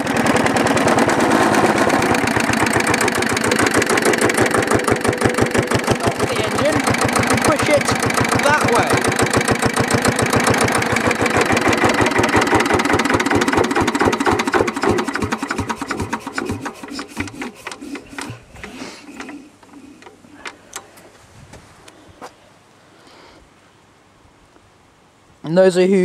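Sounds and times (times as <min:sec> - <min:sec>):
engine thump: 0:00.0 - 0:19.4
diesel engine running: 0:00.0 - 0:19.7.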